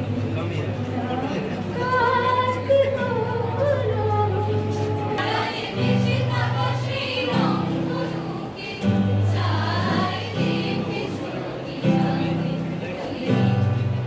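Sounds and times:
acoustic guitar: 0.0s - 14.0s
group singing in chorus: 5.2s - 14.0s.

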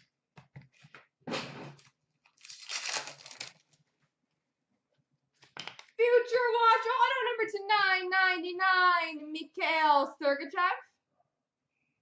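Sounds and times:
wrapper crinkling: 2.2s - 3.8s.

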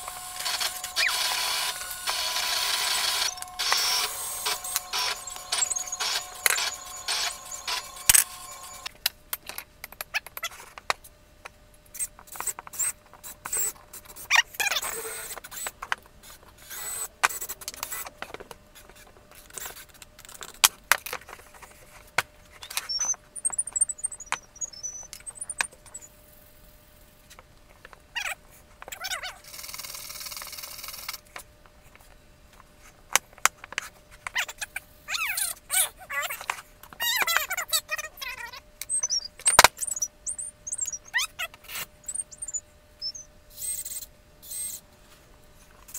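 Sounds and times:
high squeaky chirps: 0.0s - 8.9s, 22.6s - 26.1s, 34.4s - 44.8s.

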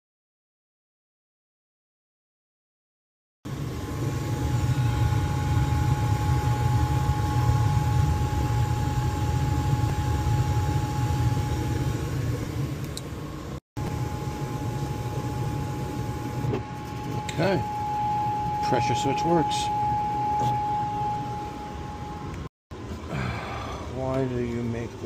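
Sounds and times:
draft inducer motor whine: 3.5s - 22.5s
gas furnace burner and fan rumble: 3.5s - 25.0s.

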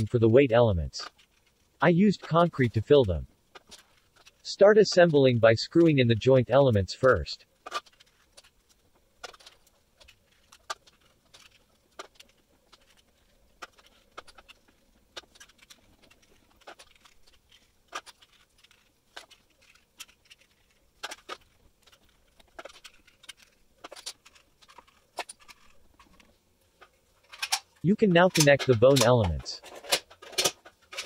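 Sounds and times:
plastic parts clicking: 7.0s - 31.0s.

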